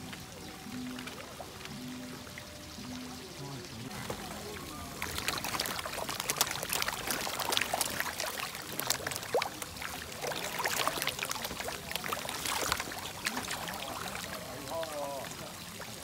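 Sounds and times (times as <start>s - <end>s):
fish splashing at water surface: 3.9s - 16.0s.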